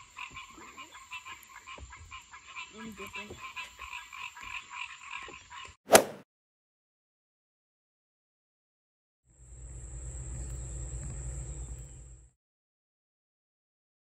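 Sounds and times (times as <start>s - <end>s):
frogs croaking: 0.0s - 5.8s.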